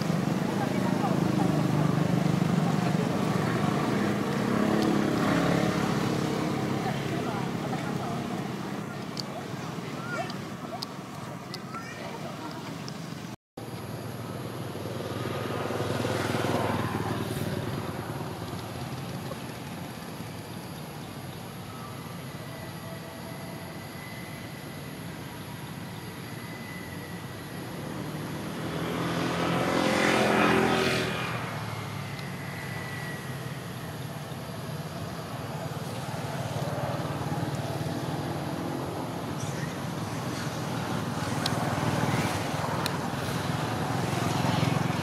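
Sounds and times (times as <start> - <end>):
vehicle engine passing: 0.0 - 10.2, 27.6 - 45.0.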